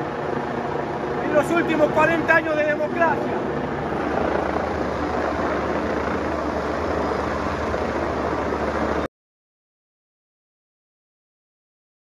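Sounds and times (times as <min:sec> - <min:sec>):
helicopter rotor and engine: 0:00.0 - 0:09.1.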